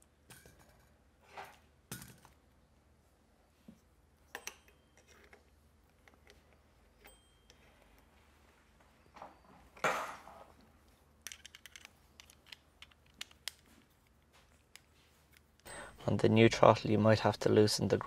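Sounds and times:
small plastic and metal parts clicking: 0:11.2 - 0:15.7.

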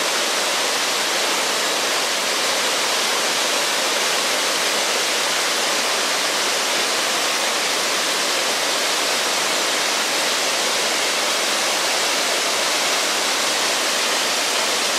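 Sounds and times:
waterfall rushing: 0:00.0 - 0:14.9.

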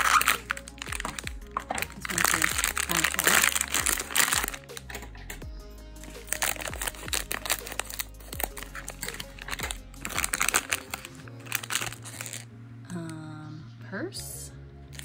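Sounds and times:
foil packet crinkling: 0:00.0 - 0:05.4, 0:06.0 - 0:12.5
background music: 0:00.0 - 0:15.0.

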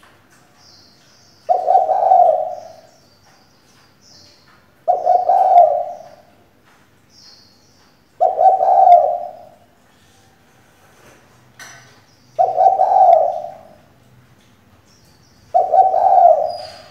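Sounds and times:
dove cooing: 0:01.5 - 0:02.9, 0:04.8 - 0:06.3, 0:08.2 - 0:09.6, 0:12.4 - 0:13.9, 0:15.5 - 0:16.9.

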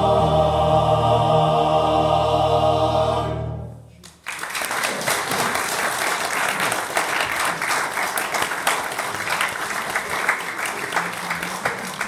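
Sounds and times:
male choir holding chord: 0:00.0 - 0:03.8
audience applause: 0:04.0 - 0:12.0.

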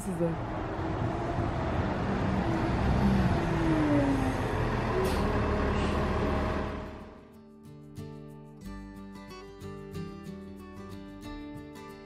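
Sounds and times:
bus passing with whine: 0:00.0 - 0:07.3.

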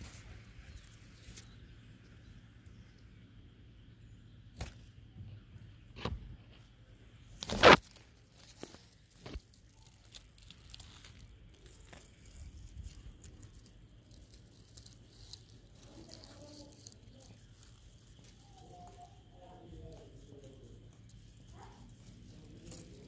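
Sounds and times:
dry leaves crunching underfoot: 0:07.2 - 0:23.0.

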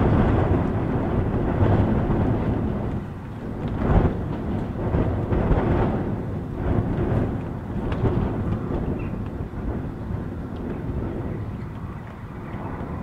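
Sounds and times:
gusting wind: 0:00.0 - 0:13.0
light rain taps: 0:00.0 - 0:13.0.

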